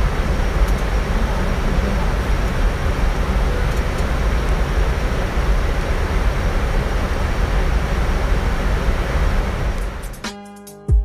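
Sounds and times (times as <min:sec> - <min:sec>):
aircraft engine rumble: 0:00.0 - 0:10.3
airflow hiss: 0:00.0 - 0:10.4.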